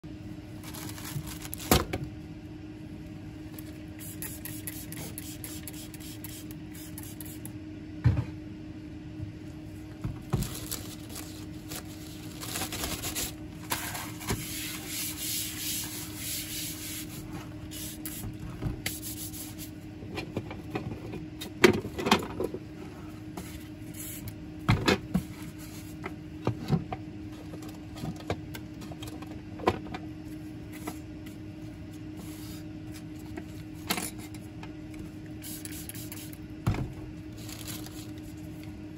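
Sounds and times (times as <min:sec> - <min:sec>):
steady low hum: 0:00.0 - 0:38.9
paper towel wiping bench: 0:10.4 - 0:18.2.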